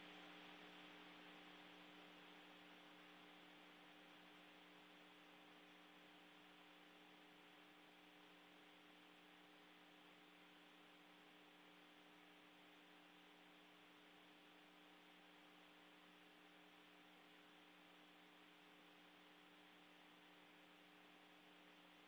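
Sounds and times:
faint electrical hum: 0.0 - 22.0
soft hiss: 0.0 - 22.0.

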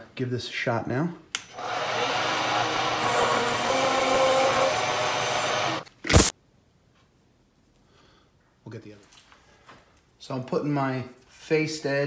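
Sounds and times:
milling cutter cutting plastic: 1.5 - 6.3
loud burst: 1.9 - 6.3.

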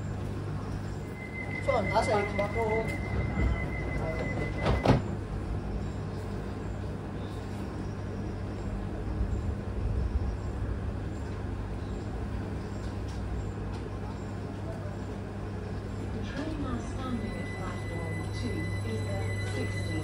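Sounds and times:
train low hum: 0.0 - 20.0
steady high tone: 1.0 - 4.8, 16.8 - 20.0.

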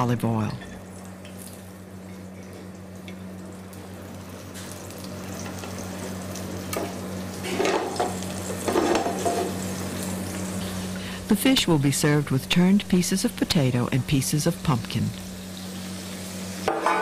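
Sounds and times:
fish sizzling in a frying pan: 0.9 - 11.6, 14.4 - 17.0.

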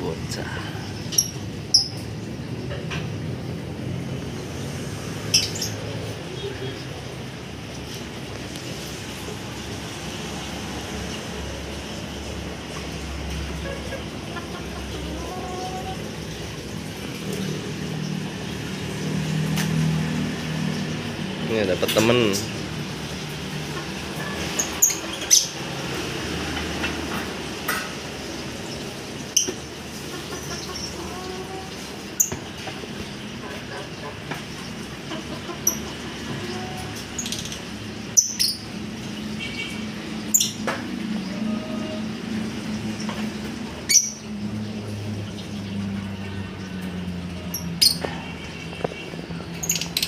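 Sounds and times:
lovebirds chirping: 5.1 - 7.0, 47.4 - 50.0
lovebirds squawking: 29.4 - 32.4, 43.8 - 44.4.

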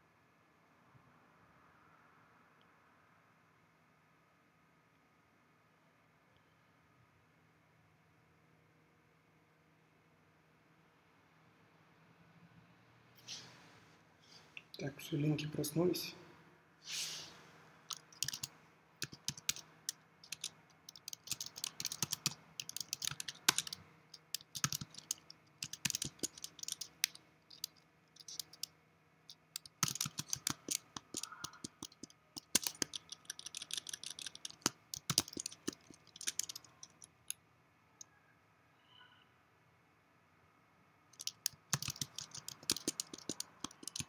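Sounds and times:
typing on computer keyboard: 17.9 - 28.7, 29.3 - 37.4, 41.2 - 44.0.

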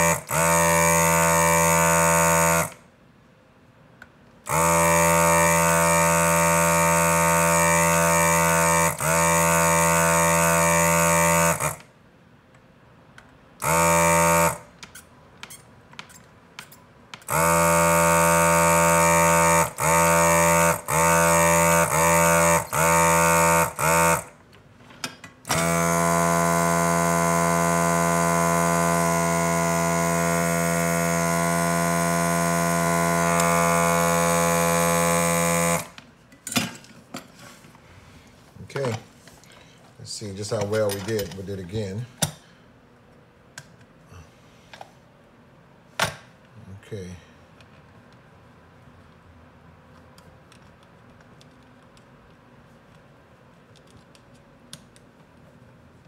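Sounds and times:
vacuum pump humming: 0.0 - 2.8, 4.5 - 11.9, 13.6 - 14.8, 17.2 - 24.4, 25.5 - 36.0.

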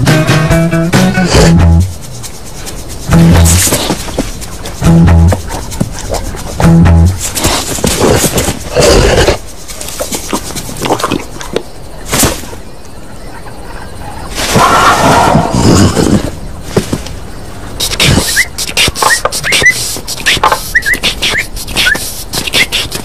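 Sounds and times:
cartoon soundtrack music: 0.0 - 1.9, 3.1 - 3.7, 4.8 - 5.5, 6.6 - 7.2.

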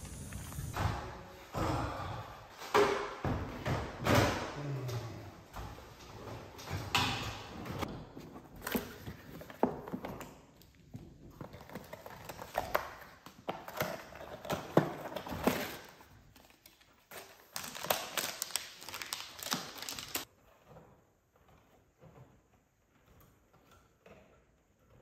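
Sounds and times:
cardboard and paper rustling: 11.1 - 21.0.

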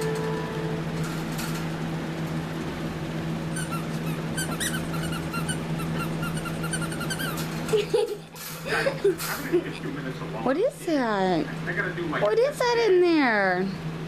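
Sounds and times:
steady low hum: 0.0 - 14.0
toy rat squeaking: 3.6 - 7.4.

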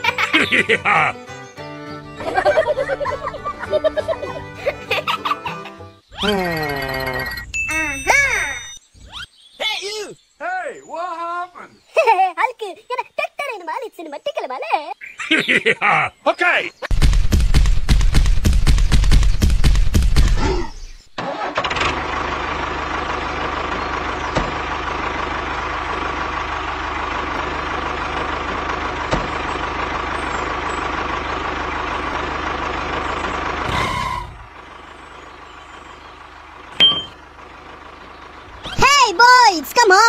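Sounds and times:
tractor engine running: 0.0 - 5.4, 16.9 - 20.4, 21.0 - 40.0
rapid loud knocking: 16.9 - 20.3
short high beep: 36.8 - 37.2.

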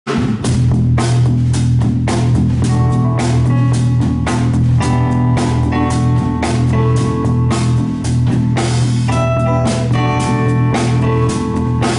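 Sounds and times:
bass guitar: 0.1 - 11.9
drum kit beat: 0.1 - 11.9
electric guitar: 0.4 - 11.9.

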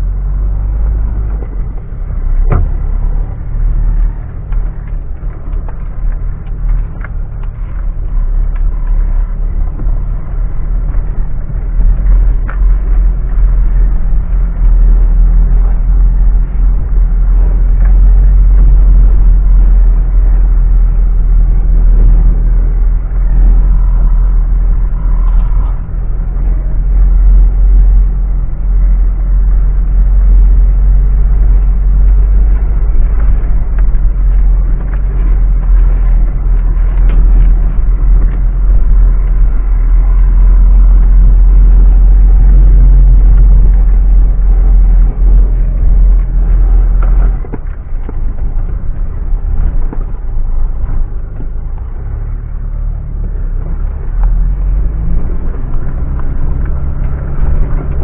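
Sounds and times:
heavy engine rumble: 0.0 - 58.0.

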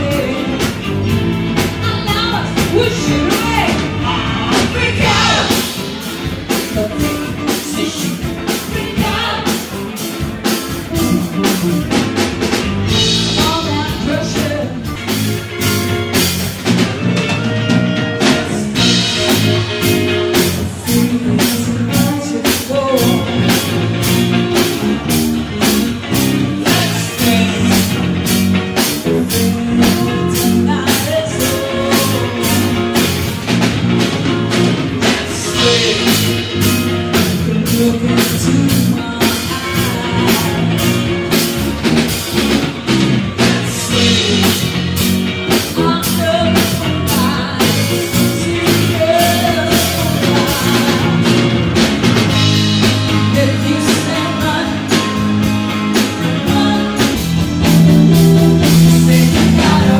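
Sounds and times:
rock band playing: 0.0 - 59.9
person singing: 1.8 - 10.1, 18.2 - 24.9, 25.6 - 33.6, 35.0 - 41.5, 43.2 - 51.8, 52.8 - 59.9.

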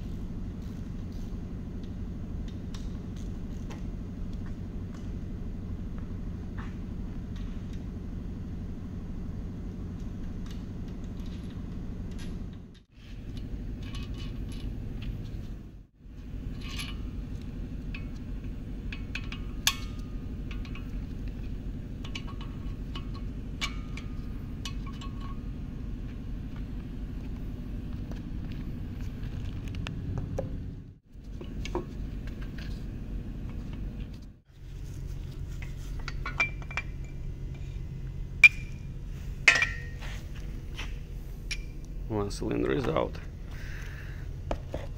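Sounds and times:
steady low hum: 0.0 - 44.9
metal tool clinks and taps: 36.0 - 37.2.

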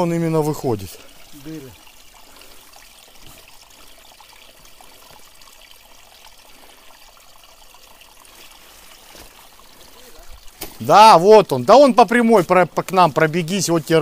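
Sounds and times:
water trickling: 0.0 - 14.0.

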